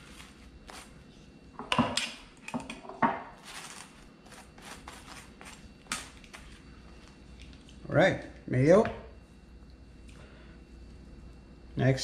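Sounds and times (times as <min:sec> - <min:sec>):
knife scraping on bread: 0:03.4 - 0:05.6.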